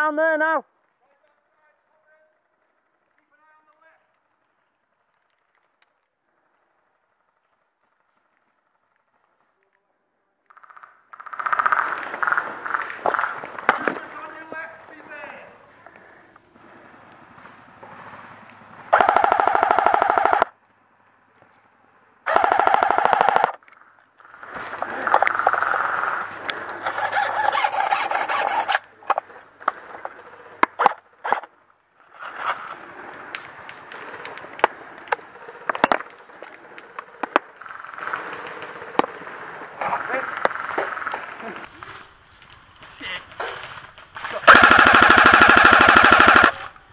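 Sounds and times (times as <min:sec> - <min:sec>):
sharp clicks: 0:18.4 - 0:20.8
airsoft rifle full-auto bursts: 0:18.9 - 0:20.6, 0:22.2 - 0:23.6, 0:25.3 - 0:28.8, 0:44.2 - 0:46.8
rustling: 0:23.7 - 0:44.5.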